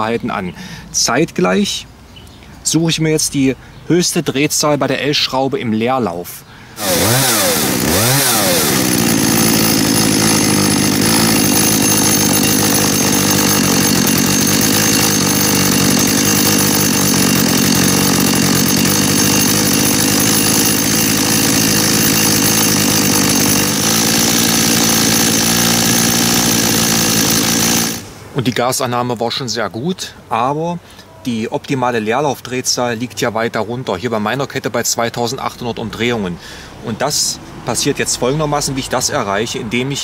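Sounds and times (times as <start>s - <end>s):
chainsaw engine idling: 6.8s - 28.1s.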